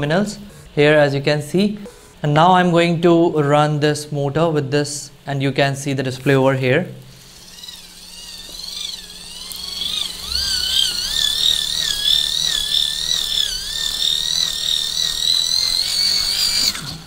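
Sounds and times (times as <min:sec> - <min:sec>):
motor high whine: 0:07.1 - 0:17.0.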